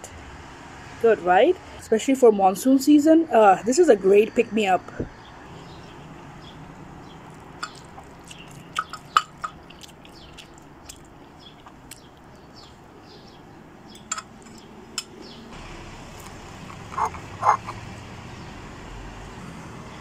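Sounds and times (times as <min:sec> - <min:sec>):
chewing: 0:07.1 - 0:12.7, 0:16.2 - 0:17.8.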